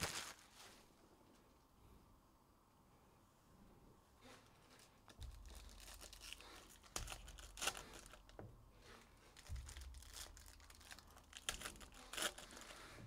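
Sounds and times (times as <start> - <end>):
foil wrapper tearing and crinkling: 0.0 - 0.6, 5.1 - 8.4, 9.3 - 12.9.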